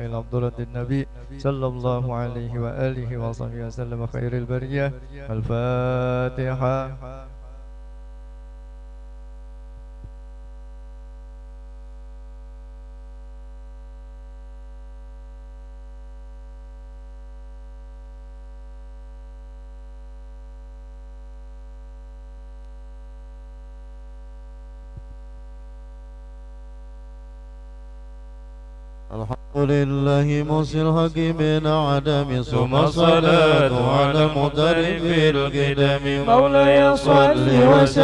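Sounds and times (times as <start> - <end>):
electrical mains hum: 0.0 - 38.0
faint click: 22.6 - 22.8.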